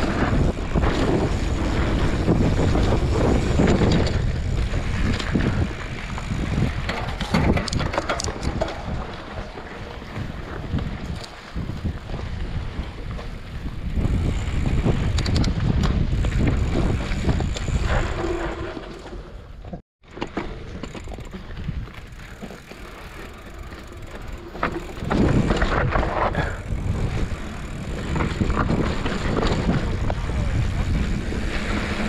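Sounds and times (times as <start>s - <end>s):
wind buffeting microphone: 0.0s - 18.8s, 21.0s - 32.0s
bike rattles and clicks: 0.0s - 32.0s
bike tyres rumbling on dirt trail: 0.0s - 32.0s.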